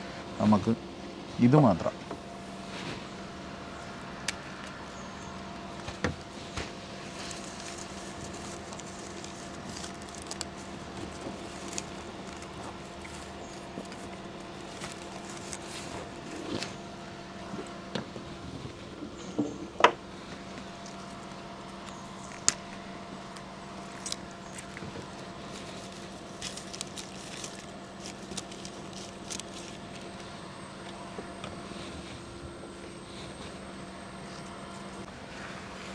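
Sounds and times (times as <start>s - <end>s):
steady hum: 0.0s - 35.9s.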